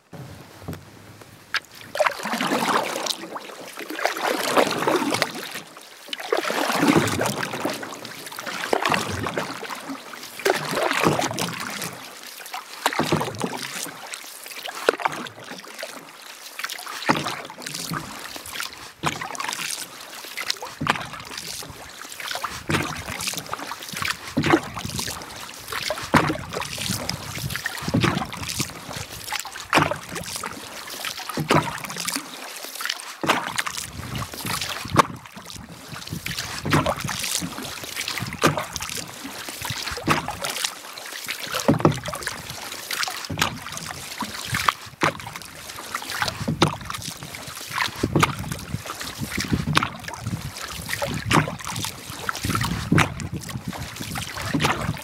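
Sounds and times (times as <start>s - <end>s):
canoe paddle splashing in water: 0.0s - 55.0s.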